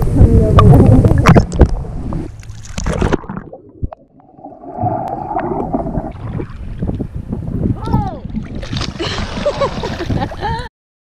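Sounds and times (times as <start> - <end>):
gurgling bubbles underwater: 0.4 - 9.0
water splashing and sloshing: 0.6 - 10.7.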